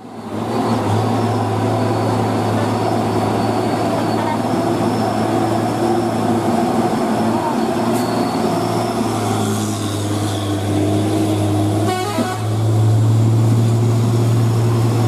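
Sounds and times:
truck diesel engine labouring: 0.0 - 15.0
rain and wet road noise: 9.0 - 15.0.

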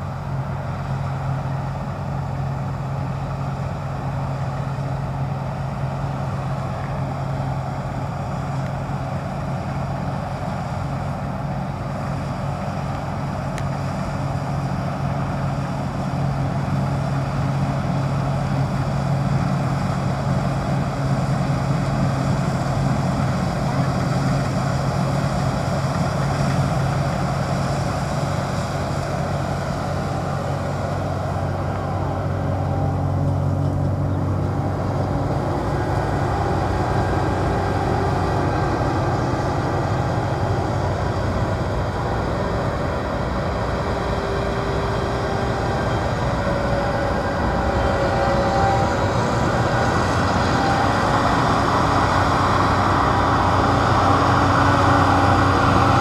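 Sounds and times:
combine harvester droning: 0.0 - 56.0.

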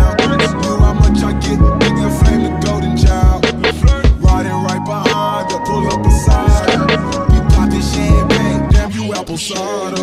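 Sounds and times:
music with drum beat: 0.0 - 10.0.

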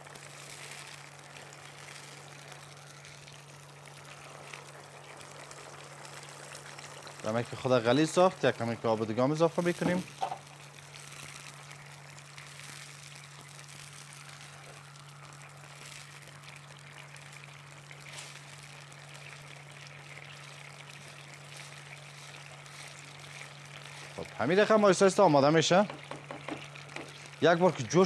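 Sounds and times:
sauce stirred in frying pan: 0.0 - 27.4
low electrical hum: 0.0 - 28.0.

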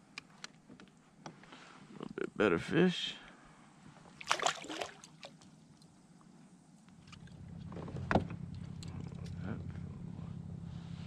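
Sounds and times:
water splash: 4.2 - 5.4.

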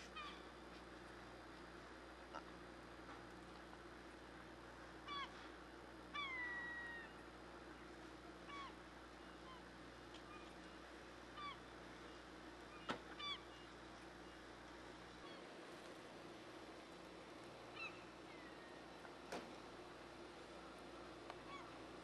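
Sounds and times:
low machinery hum: 0.0 - 22.0
gulls calling: 5.0 - 5.4, 8.4 - 14.5, 17.6 - 19.1, 21.3 - 22.0.

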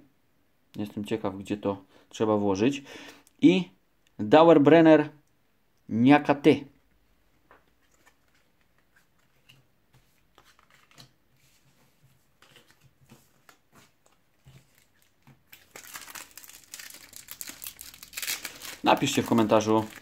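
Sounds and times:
foil packet crinkling and tearing: 14.5 - 20.0.

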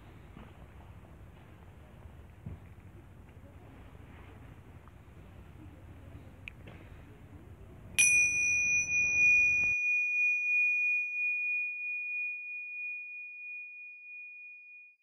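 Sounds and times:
faint outdoor background noise: 0.0 - 12.2
bell-like chime ringing: 8.0 - 15.0.

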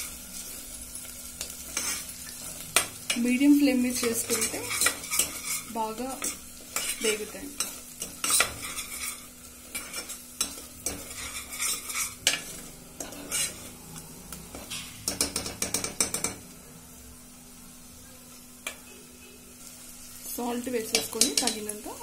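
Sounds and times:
light sizzle: 0.0 - 22.0
metal spoon scraping pot: 4.0 - 13.8.

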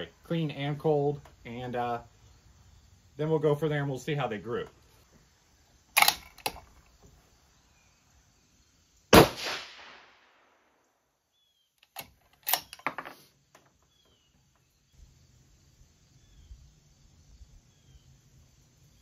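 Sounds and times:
rifle bolt clicking: 6.0 - 6.7, 11.8 - 12.9
rifle shot: 9.1 - 10.7.

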